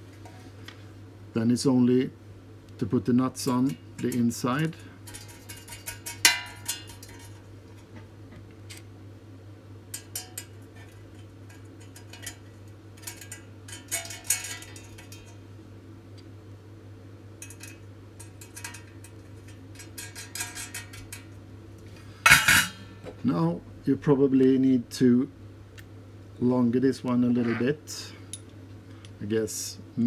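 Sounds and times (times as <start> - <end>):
metal nuts clinking: 3.4 - 7.4, 10.0 - 15.4, 17.4 - 21.4.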